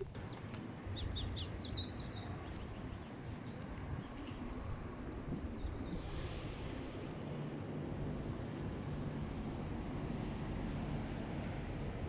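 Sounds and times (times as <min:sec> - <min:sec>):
small birds chirping: 0:00.0 - 0:06.1.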